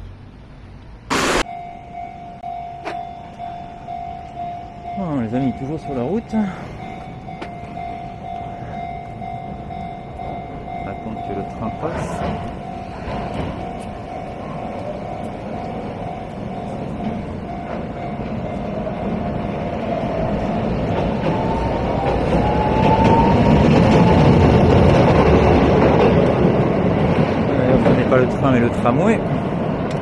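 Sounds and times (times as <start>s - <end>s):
tram wheels and motors whining: 0.0s - 30.0s
level crossing bell ringing: 1.4s - 20.6s.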